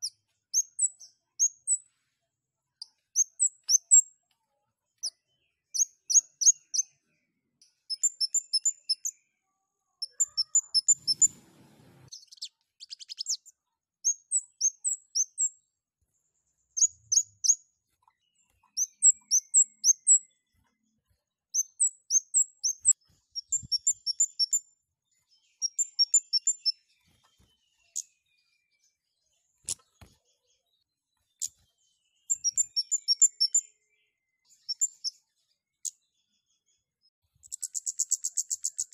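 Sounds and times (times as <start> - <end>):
bird high sharp chirps: 2.8 - 4.1, 7.6 - 9.2, 10.0 - 15.6, 16.8 - 20.4, 21.5 - 28.5, 31.3 - 33.7, 34.5 - 35.2, 37.4 - 38.9.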